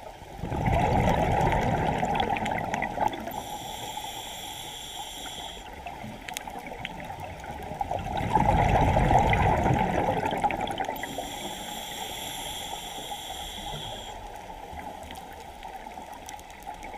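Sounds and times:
exhaled bubbles rushing underwater: 0.0s - 3.6s, 5.2s - 11.4s
regulator inhalation hiss: 3.3s - 5.8s, 11.0s - 15.1s.

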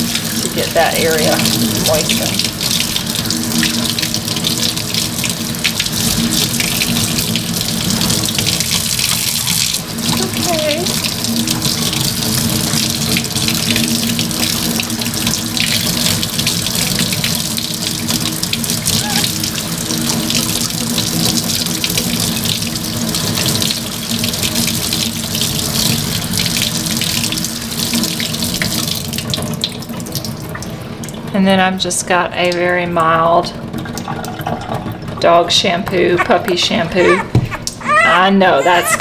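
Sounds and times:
tap water running into sink: 0.0s - 31.4s, 32.4s - 38.1s.

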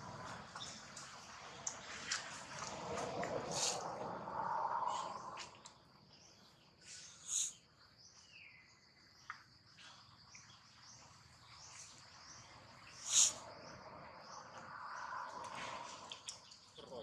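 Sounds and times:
bird calls: 0.1s - 17.0s
sharp high bird chirps: 12.9s - 13.7s.

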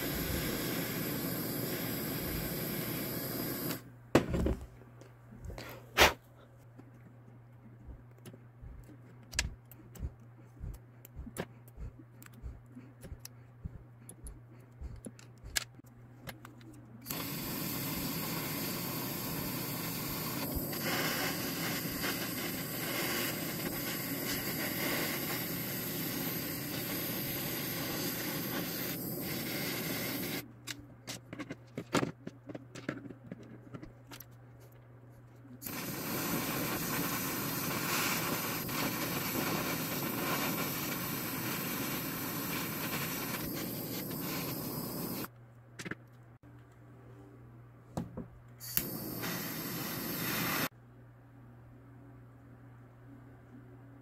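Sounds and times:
blow torch flame hissing: 0.0s - 3.9s, 5.7s - 6.2s, 17.0s - 30.4s, 35.6s - 45.3s, 48.6s - 50.7s.

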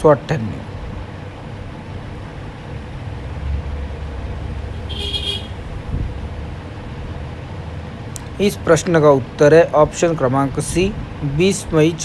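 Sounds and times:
road traffic rumble: 0.0s - 12.0s
vehicle horn toot: 4.8s - 5.7s.

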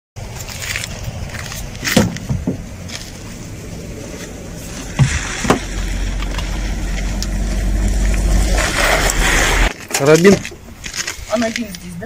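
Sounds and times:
low steady rumble: 0.2s - 9.8s
sharp knocks: 1.8s - 2.7s.

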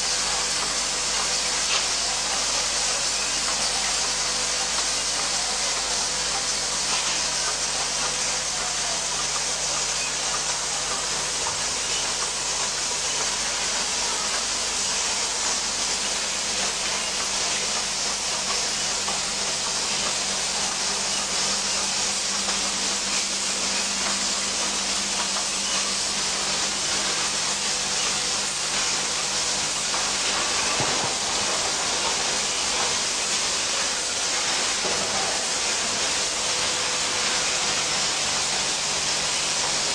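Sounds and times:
factory machinery hiss: 0.0s - 39.9s.

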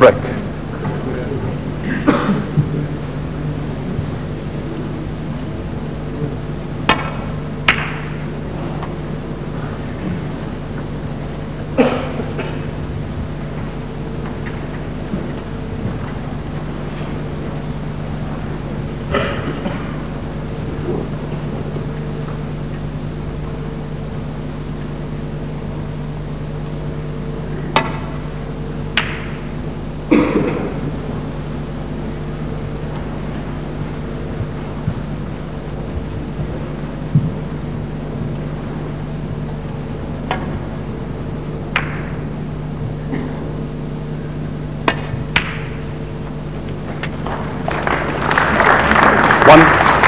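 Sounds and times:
steady hum: 0.0s - 50.0s
cue striking ball click: 6.8s - 9.0s, 27.6s - 29.5s, 41.6s - 42.3s, 44.8s - 47.8s
snooker balls colliding: 6.8s - 9.0s, 40.2s - 42.3s, 44.3s - 49.2s
audience applause: 46.7s - 50.0s.

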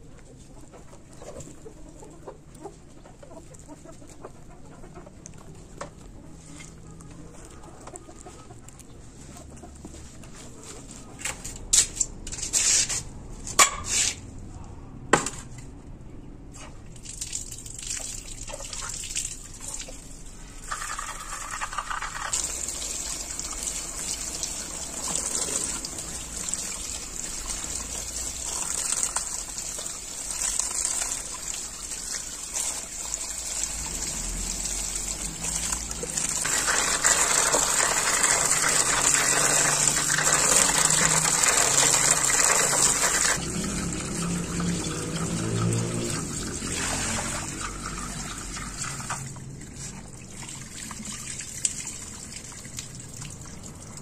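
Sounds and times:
greens rinsed by hand: 16.7s - 54.0s.

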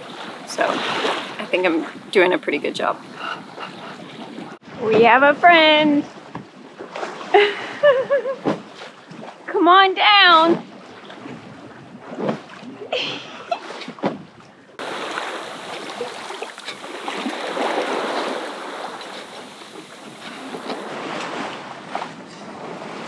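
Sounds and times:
water rushing along boat hull: 0.0s - 23.0s
wind on microphone: 10.4s - 23.0s.

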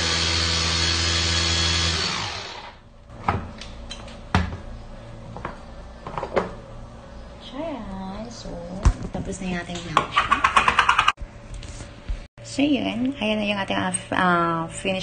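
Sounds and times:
food chopper motor hum: 0.0s - 2.8s.

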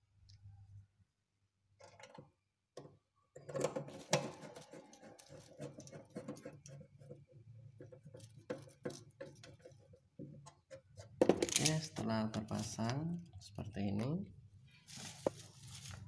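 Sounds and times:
clicks taps and rustling on sheet metal: 7.8s - 11.7s.

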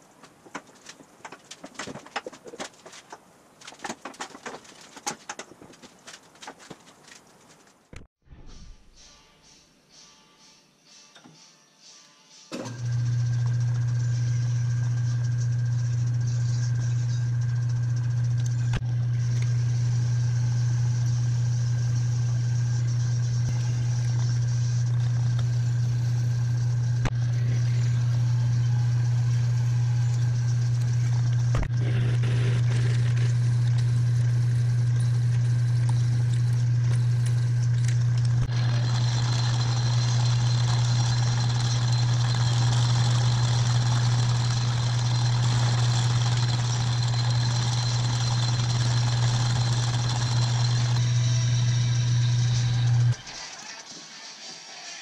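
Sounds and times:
lathe motor hum with high whine: 12.6s - 53.2s
turning tool cutting metal: 12.6s - 53.2s
drill boring into metal: 38.4s - 53.2s.

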